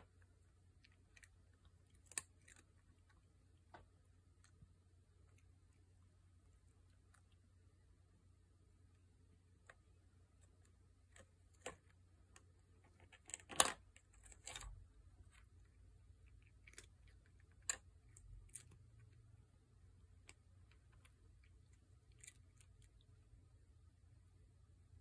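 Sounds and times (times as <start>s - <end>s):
treat puzzle clicks and knocks: 10.5s - 14.7s.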